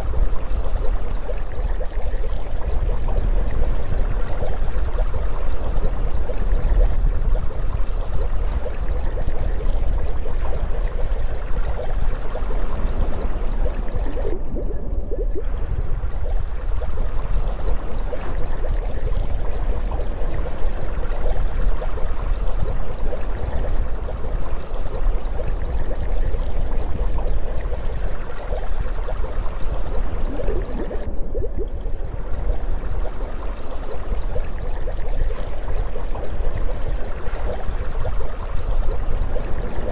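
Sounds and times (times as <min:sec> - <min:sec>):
underwater watery rushing: 0:00.0 - 0:39.9
deep rumble: 0:13.9 - 0:16.8, 0:29.8 - 0:33.2.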